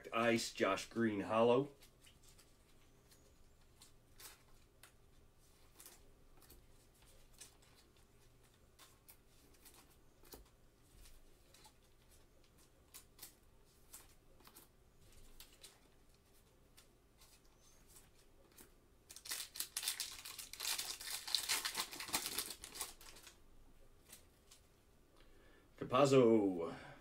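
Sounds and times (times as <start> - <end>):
foil wrapper crinkling and tearing: 18.5 - 23.4.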